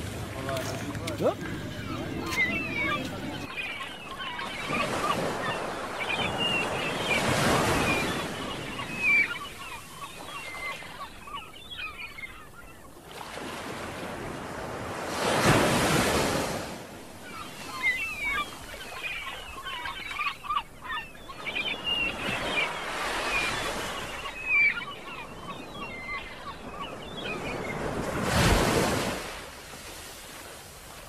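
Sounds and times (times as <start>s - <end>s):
high chirping calls: 1.0s - 12.5s.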